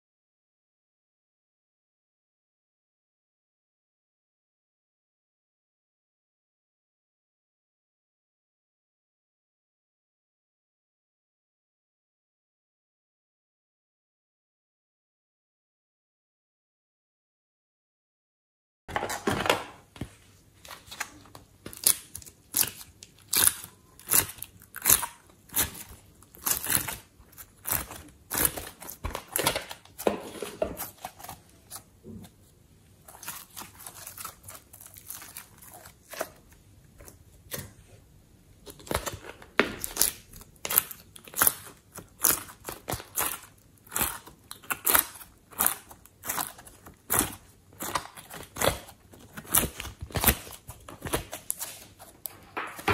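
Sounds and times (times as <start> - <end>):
sticky clay squishing: 20.0 - 38.0, 38.6 - 52.9.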